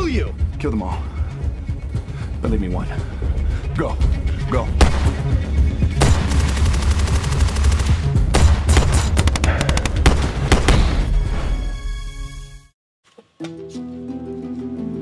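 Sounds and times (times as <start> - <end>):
single gunshots: 4.8 - 5.2, 8.3 - 11.1
automatic gunfire: 6.0 - 10.8.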